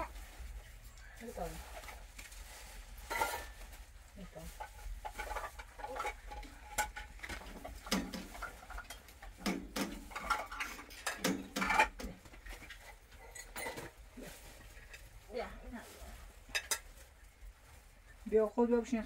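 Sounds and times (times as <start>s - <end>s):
dishes and utensils clinking: 3.0s - 3.8s, 4.6s - 14.0s, 16.4s - 17.1s.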